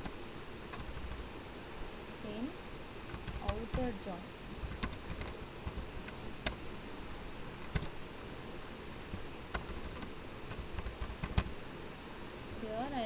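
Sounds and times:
steady background hiss: 0:00.0 - 0:13.0
keyboard typing clicks: 0:03.1 - 0:03.9, 0:04.6 - 0:06.6, 0:07.6 - 0:07.9, 0:09.1 - 0:11.5.

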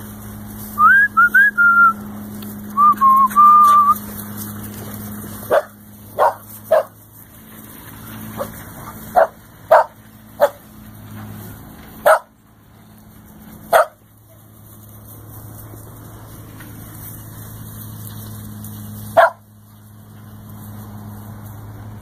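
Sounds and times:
puppy yipping: 0:19.2 - 0:19.4.

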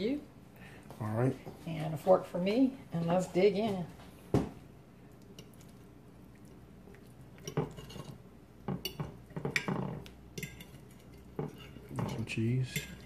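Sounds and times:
forks clinking on a plate: 0:07.4 - 0:13.0.

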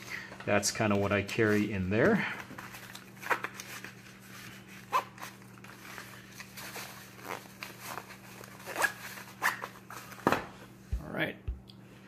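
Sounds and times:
nylon pouch rustling: 0:01.4 - 0:10.2
zipper rasps: 0:07.1 - 0:07.6, 0:08.6 - 0:09.7.

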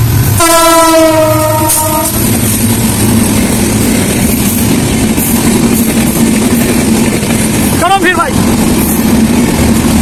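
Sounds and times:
train rumbling past: 0:00.0 - 0:10.0
train horn: 0:00.4 - 0:02.2.

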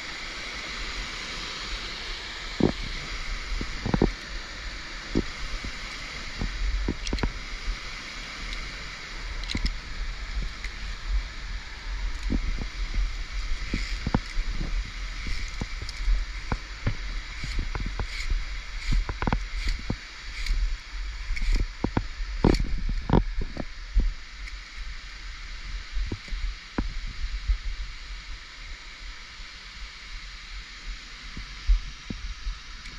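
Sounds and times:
waterfall rushing: 0:00.0 - 0:27.0
climbing gear clicking on cable: 0:02.6 - 0:07.8, 0:08.4 - 0:11.2, 0:12.0 - 0:23.7, 0:24.3 - 0:25.0
footsteps: 0:12.0 - 0:24.1.

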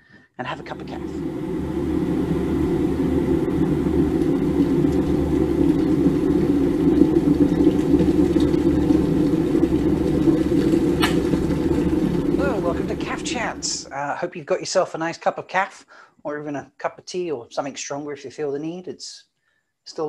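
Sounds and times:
electric kettle heating water: 0:00.5 - 0:13.9.

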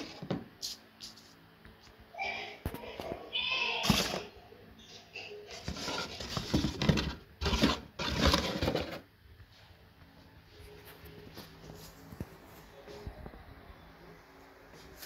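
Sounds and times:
cardboard box rustling: 0:05.5 - 0:09.0.

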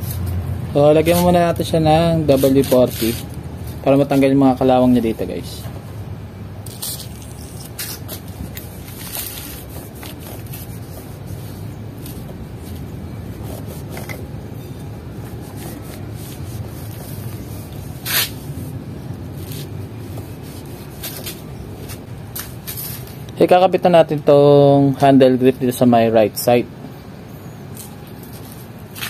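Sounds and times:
steady low rumble: 0:00.0 - 0:23.8
cloth rubbing metal: 0:06.6 - 0:23.1.

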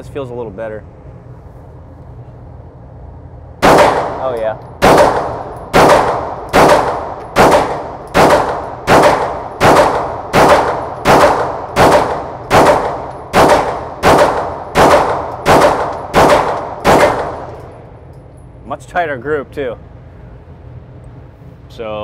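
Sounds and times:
pistol shots echoing indoors: 0:03.6 - 0:17.8.

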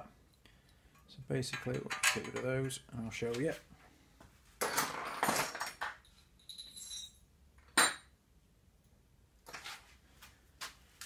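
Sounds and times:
small metal parts clinking: 0:04.6 - 0:07.2.

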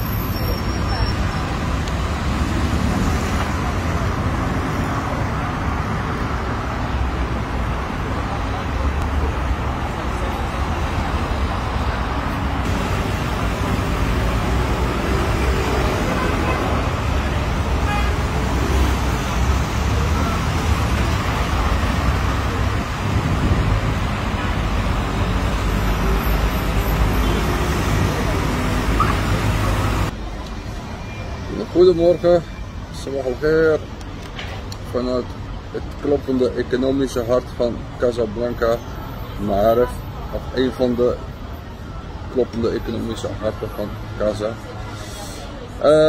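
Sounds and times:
cars driving past: 0:00.0 - 0:46.0
wind rumbling on microphone: 0:22.5 - 0:24.9.

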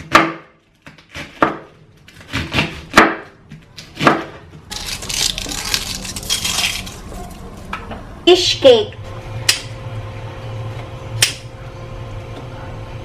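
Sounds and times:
knife chopping on wooden board: 0:00.0 - 0:04.4.

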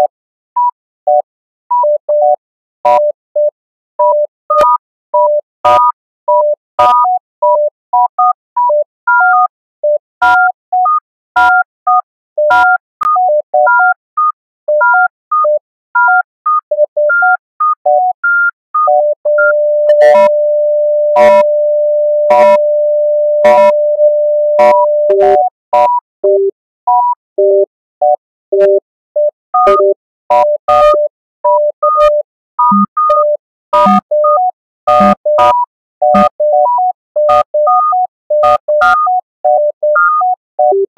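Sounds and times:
electronic beeps in a looping pattern: 0:12.5 - 0:31.0, 0:31.6 - 0:36.6, 0:37.2 - 0:40.9
low steady electronic tone: 0:19.0 - 0:25.5.

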